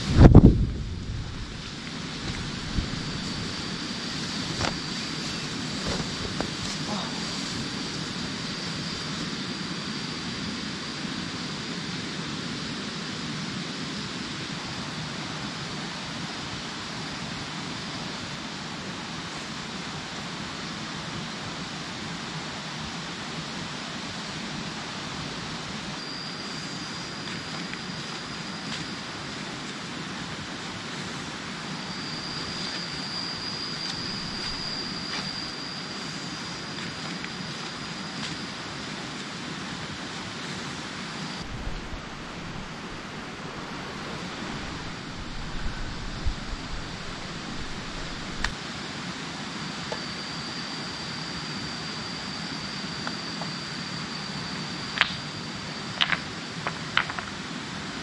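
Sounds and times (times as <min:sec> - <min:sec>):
high insect drone: 0:00.0 - 0:58.0
rushing hiss of forest: 0:00.0 - 0:58.0.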